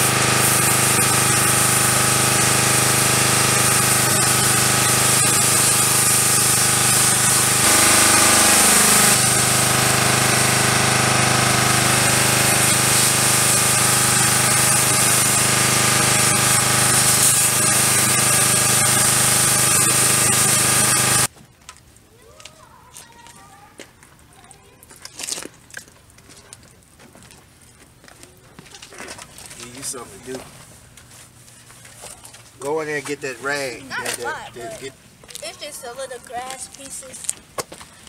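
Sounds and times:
pressure washer motor humming: 0:00.0 - 0:21.3
spray jet hissing: 0:00.0 - 0:21.3.

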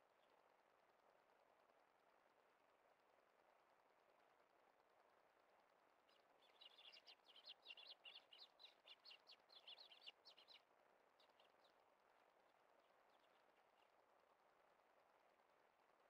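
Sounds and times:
sparrows chirping: 0:06.1 - 0:10.6.

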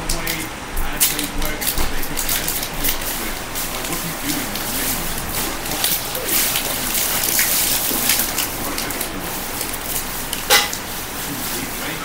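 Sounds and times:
cards rustling: 0:00.2 - 0:12.0.

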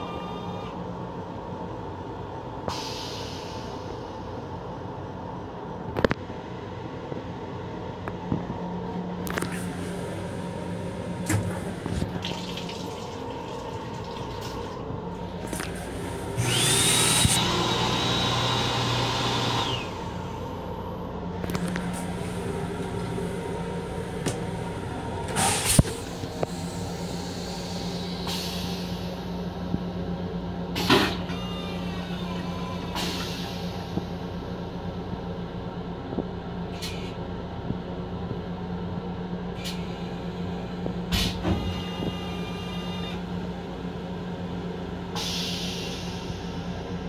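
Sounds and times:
railcar hum: 0:00.0 - 0:47.0
toilet flushing with high whine: 0:10.0 - 0:20.4.

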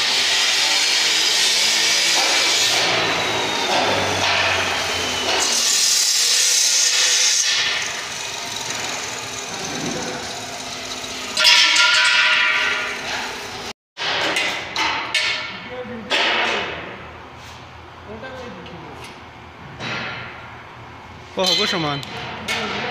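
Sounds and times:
harsh power tool burst: 0:00.0 - 0:13.7.

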